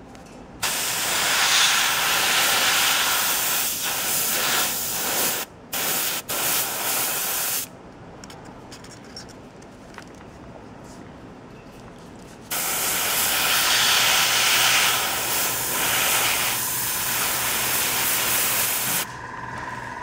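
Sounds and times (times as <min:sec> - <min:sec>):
airbrush spraying hiss: 0:00.6 - 0:07.7, 0:12.5 - 0:19.1.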